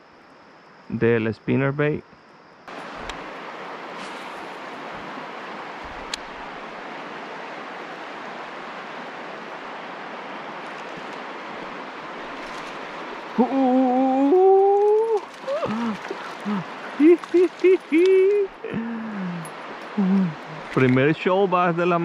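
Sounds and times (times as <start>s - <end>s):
river current rushing: 2.7s - 22.0s
person humming: 13.4s - 20.7s.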